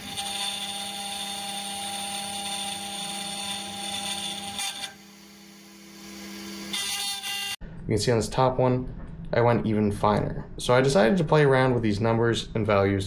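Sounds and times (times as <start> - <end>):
spindle whining while cutting metal: 0.0 - 7.6.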